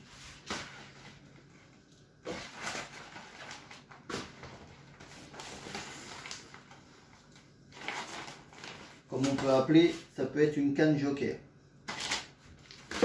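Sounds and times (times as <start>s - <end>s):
plastic bag rustling: 2.2s - 10.1s, 11.9s - 13.0s.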